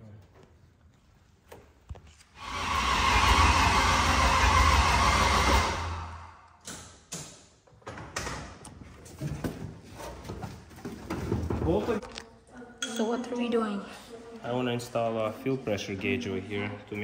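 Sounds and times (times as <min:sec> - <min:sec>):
engine cranking on starter motor: 0:02.4 - 0:06.2.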